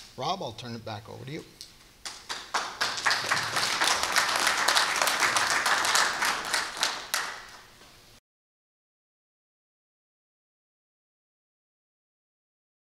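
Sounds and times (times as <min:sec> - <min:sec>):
audience applauding: 0:02.0 - 0:07.7.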